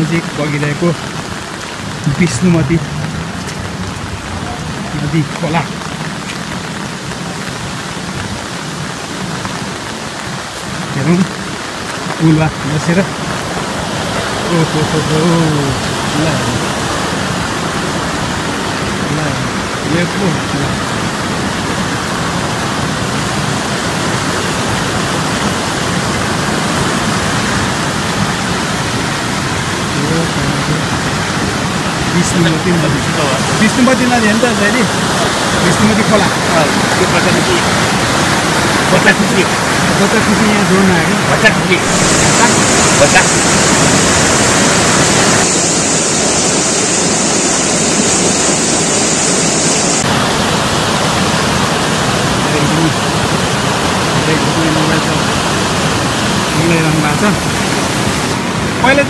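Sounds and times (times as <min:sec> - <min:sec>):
river water rushing over weir: 0:00.0 - 0:59.0.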